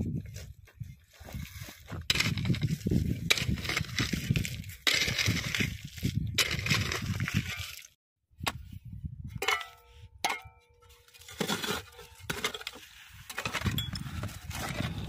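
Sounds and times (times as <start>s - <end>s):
stones crunching and scraping: 0.0s - 8.0s, 10.9s - 15.0s.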